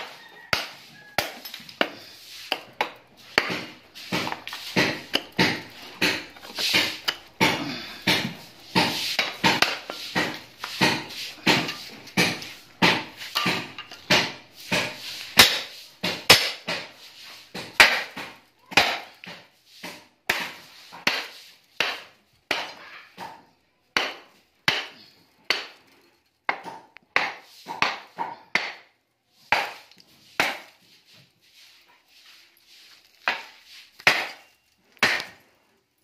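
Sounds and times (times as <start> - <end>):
hammer striking metal: 0.5 - 16.9.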